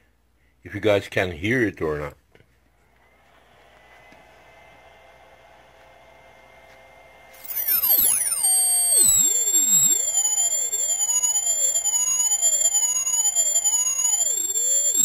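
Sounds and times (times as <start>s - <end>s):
high-pitched electronic tone: 7.4s - 15.0s
warbling faint tones: 7.4s - 15.0s.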